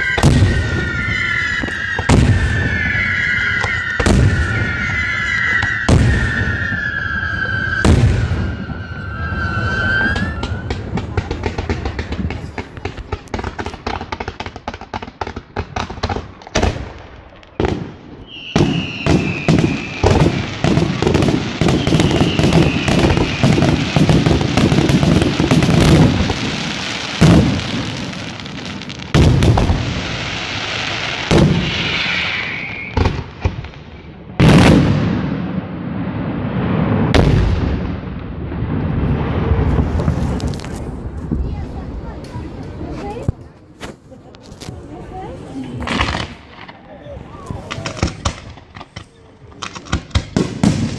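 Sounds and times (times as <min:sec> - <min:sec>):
firework whistles: 0:00.0 - 0:11.1, 0:17.5 - 0:27.4, 0:30.0 - 0:33.4
fireworks crackling pops: 0:00.0 - 0:35.4, 0:36.5 - 0:50.9
fireworks bursts: 0:00.0 - 0:50.9.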